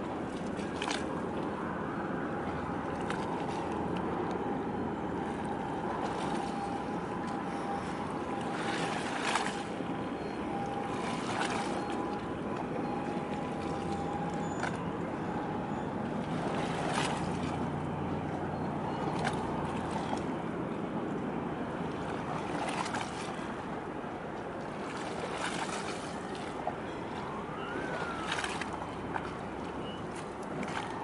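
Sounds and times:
low boat engine hum: 0:00.0 - 0:31.0
water noise: 0:00.0 - 0:31.0
wind: 0:00.0 - 0:31.0.

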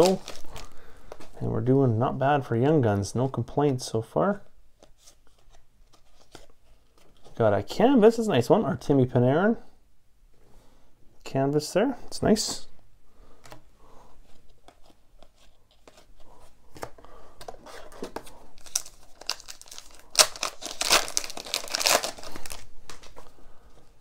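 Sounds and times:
plastic wrapper tearing and crinkling: 0:00.0 - 0:01.2, 0:18.0 - 0:23.2
cards rustling and clicking: 0:00.0 - 0:01.4, 0:04.8 - 0:07.4, 0:14.2 - 0:23.3.

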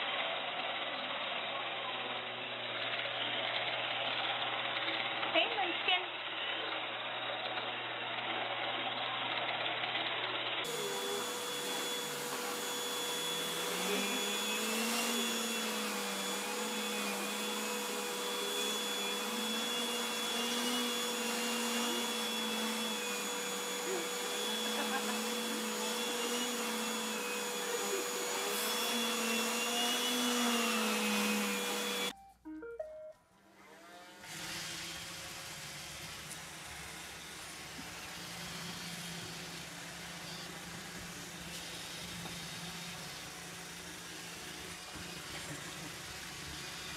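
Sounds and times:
robot vacuum running: 0:00.0 - 0:32.1, 0:33.6 - 0:46.9
vacuum cleaner on carpet: 0:00.0 - 0:32.2, 0:33.5 - 0:46.9.

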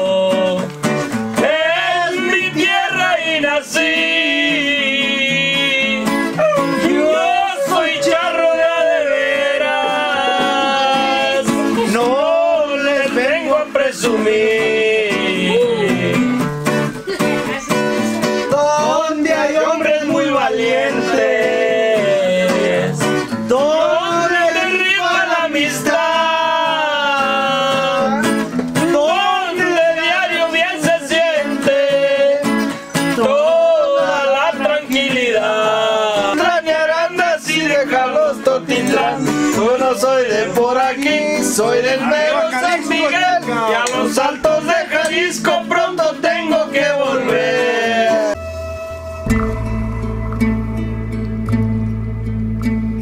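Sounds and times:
person singing: 0:00.0 - 0:51.9
guitar accompaniment: 0:00.0 - 0:53.0.

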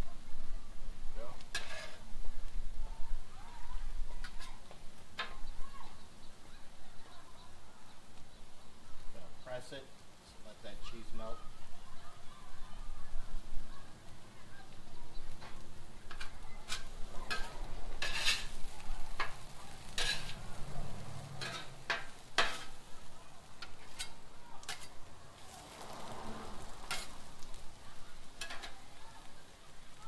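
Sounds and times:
food sizzling: 0:00.0 - 0:30.0
metal spatula clacking on griddle: 0:01.4 - 0:02.0, 0:04.2 - 0:05.4, 0:15.4 - 0:22.9, 0:23.5 - 0:25.5, 0:26.7 - 0:27.6, 0:28.2 - 0:29.0.

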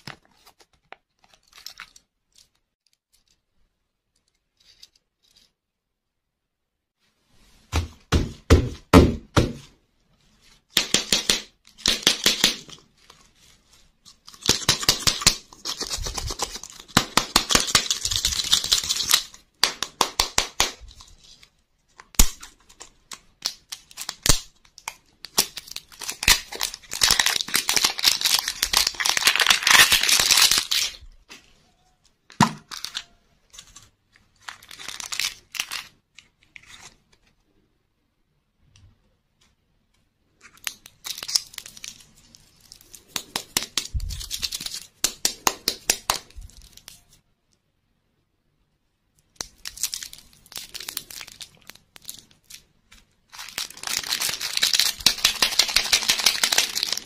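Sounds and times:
plastic candy wrapper crinkling: 0:00.0 - 0:03.4, 0:11.1 - 0:31.1, 0:32.3 - 0:37.3, 0:40.4 - 0:47.2, 0:49.2 - 0:57.0.

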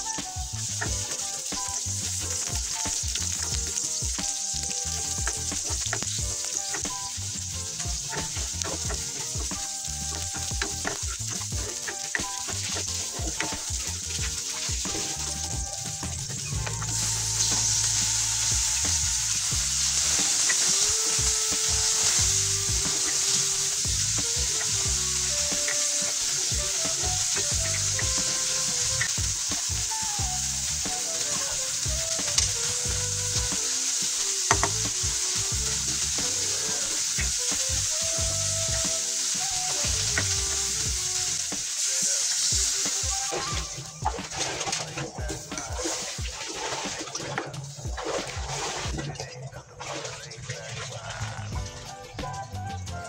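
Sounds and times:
tomatoes sizzling in oil: 0:00.0 - 0:49.0, 0:51.0 - 0:53.0
water being poured: 0:00.0 - 0:53.0
spatula tapping pan: 0:34.2 - 0:34.9.

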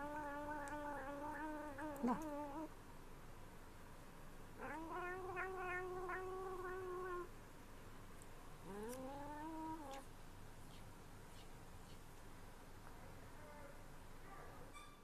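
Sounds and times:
cat meowing: 0:04.6 - 0:07.3.

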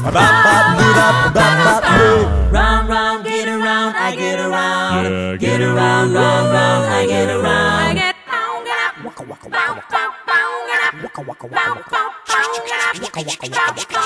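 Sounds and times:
vocal percussion: 0:00.0 - 0:03.2, 0:08.7 - 0:14.0
a cappella group singing: 0:00.0 - 0:14.0
low voice swooping down: 0:01.8 - 0:03.0.

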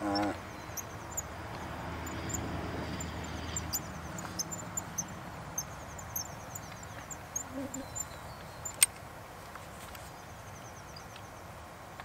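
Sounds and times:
insects chirping: 0:00.0 - 0:08.9.

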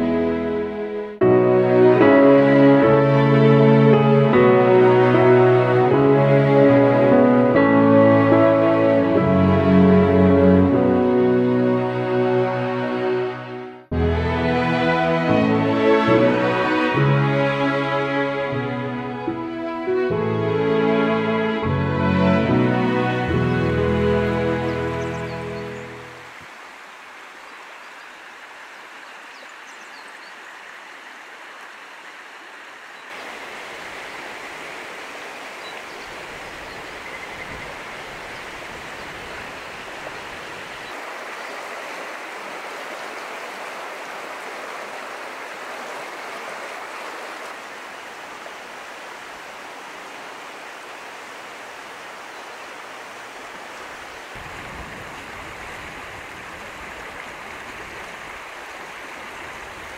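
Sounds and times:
river rushing over stones: 0:21.9 - 0:59.9.

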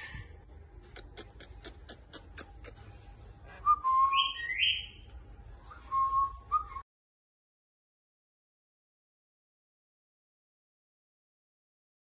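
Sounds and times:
shrill whistling: 0:03.6 - 0:05.0, 0:05.8 - 0:06.8.

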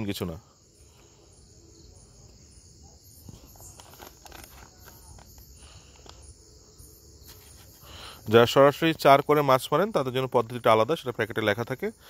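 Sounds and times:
crickets chirping: 0:00.0 - 0:12.0
faint handling rustles and clicks: 0:03.2 - 0:06.3.

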